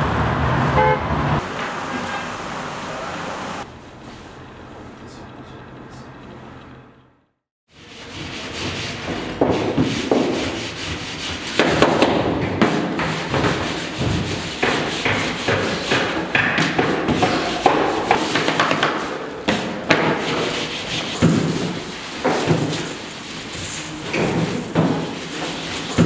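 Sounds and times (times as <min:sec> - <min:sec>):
rolling pin rubbing dough: 0:07.7 - 0:26.0
rolling pin knocking on table: 0:11.6 - 0:20.4.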